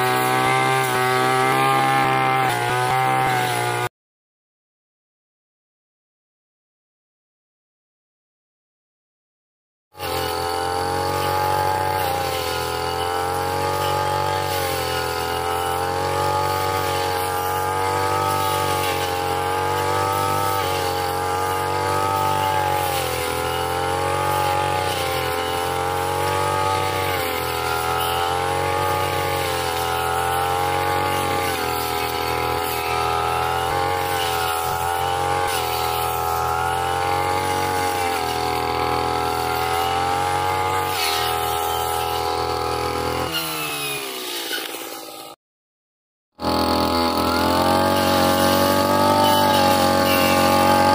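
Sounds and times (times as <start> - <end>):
blade cutting grass and brush: 0.0 - 3.9, 10.0 - 45.4, 46.4 - 50.9
brush cutter engine running: 0.0 - 3.9, 10.0 - 45.4, 46.4 - 50.9.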